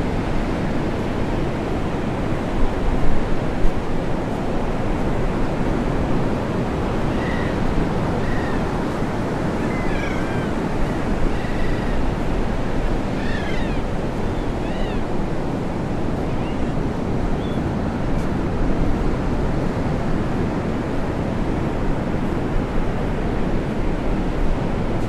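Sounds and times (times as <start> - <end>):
ocean surf breaking: 0.0 - 25.0
short high arching calls: 13.2 - 15.0.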